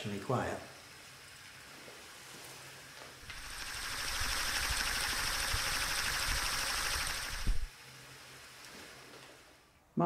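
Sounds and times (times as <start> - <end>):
peristaltic pump whirring: 0.8 - 9.7.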